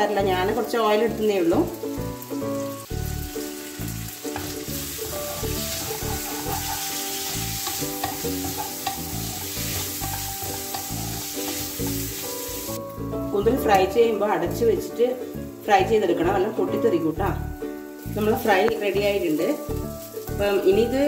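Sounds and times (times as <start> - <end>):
squid sizzling in hot oil: 0.2 - 13.8, 15.2 - 21.0
wooden spatula stirring: 4.3 - 12.2.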